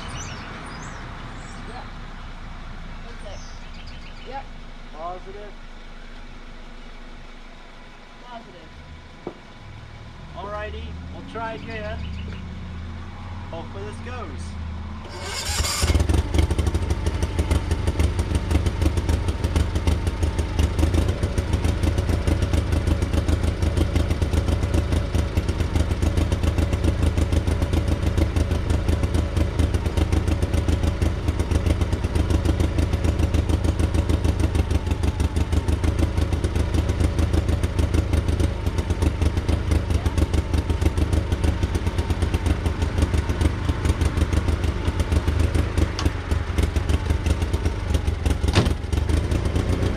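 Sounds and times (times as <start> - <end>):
engine running steadily: 0.0 - 49.9.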